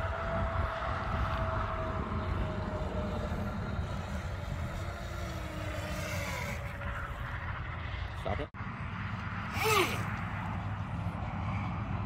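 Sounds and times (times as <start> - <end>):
model boat electric motor whining: 0.0 - 7.2, 9.5 - 10.2.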